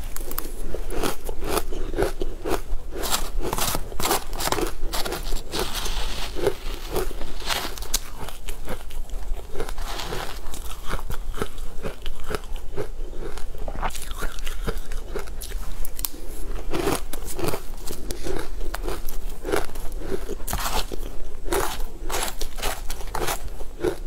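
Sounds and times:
person chewing crunchy food: 0.0 - 24.0.

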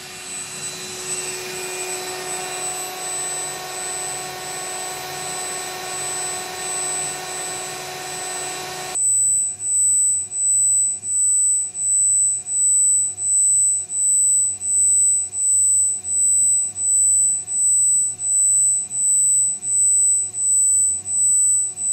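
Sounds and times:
servo motor whine: 0.0 - 9.2.

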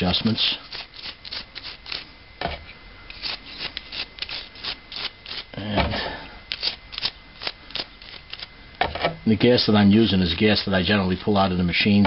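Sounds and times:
toothbrush scrubbing metal: 0.0 - 2.1, 3.1 - 5.6, 6.5 - 8.5.

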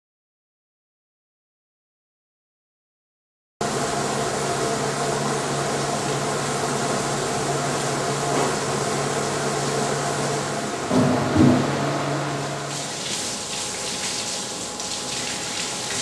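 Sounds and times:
mixer machine hum: 3.6 - 16.0.

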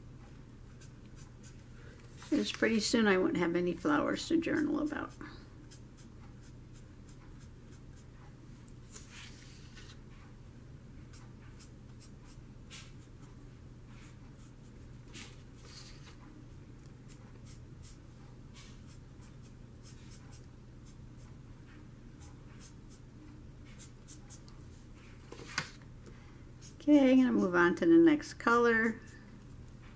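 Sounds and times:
low steady hum: 0.0 - 29.9
marker scratching on paper: 11.2 - 13.1, 17.1 - 18.0, 22.2 - 23.0, 23.7 - 24.4.

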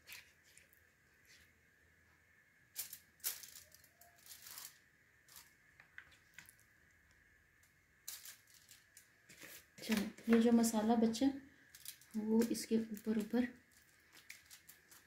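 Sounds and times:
crinkling of foil: 2.7 - 6.7, 8.0 - 10.5, 11.6 - 15.0.

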